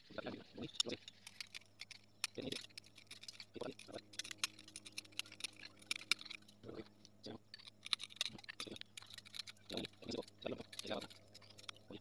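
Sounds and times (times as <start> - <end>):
glass scraping: 0.6 - 6.9, 7.5 - 11.9
glass chipping clicks: 0.6 - 11.9.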